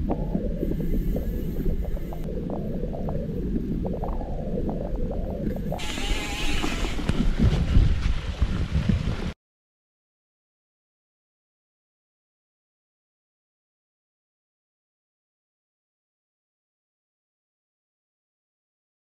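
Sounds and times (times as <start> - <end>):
wind on microphone: 0.0 - 9.4.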